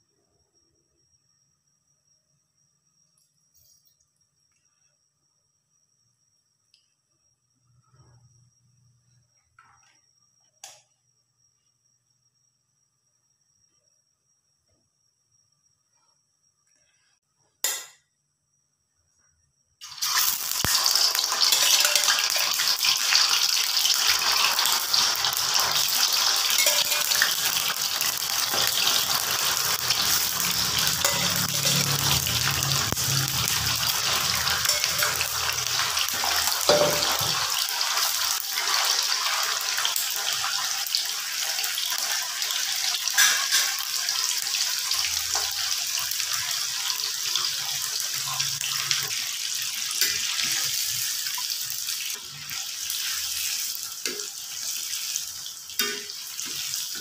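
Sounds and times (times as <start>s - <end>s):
tofu sizzling in hot oil: 19.8s - 57.0s.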